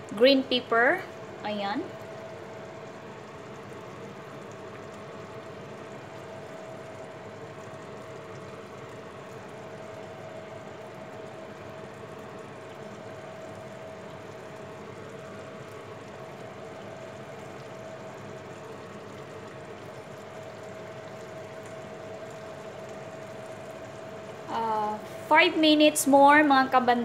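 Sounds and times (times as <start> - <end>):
sauce simmering in a frying pan: 0.0 - 27.0
steady hum: 0.0 - 27.0.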